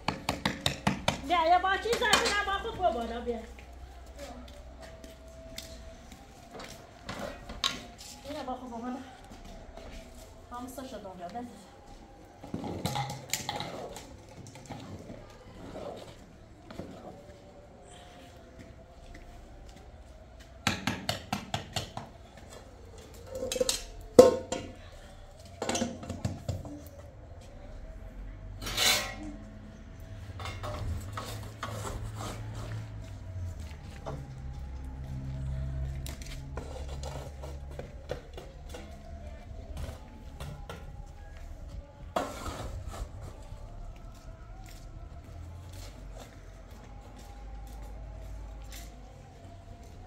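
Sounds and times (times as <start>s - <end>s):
metal spatula scraping charcoal: 28.6s - 29.2s.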